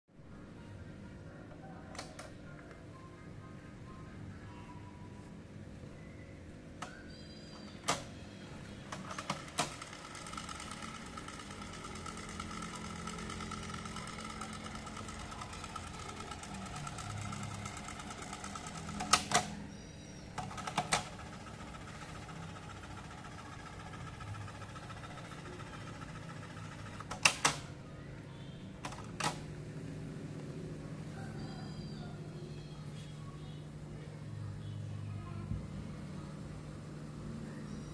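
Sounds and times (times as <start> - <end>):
tape transport whirring: 6.8 - 27.8.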